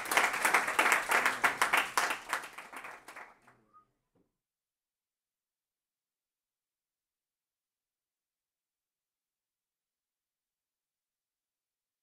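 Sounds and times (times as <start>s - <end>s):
audience applauding: 0.0s - 3.6s.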